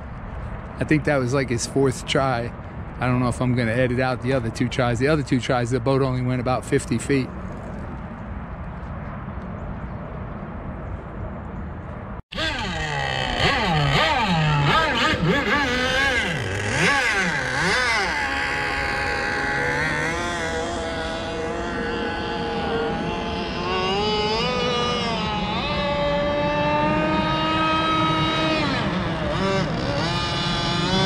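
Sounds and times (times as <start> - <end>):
low rumbling noise: 0.0 - 31.0
model boat engine revving: 12.3 - 31.0.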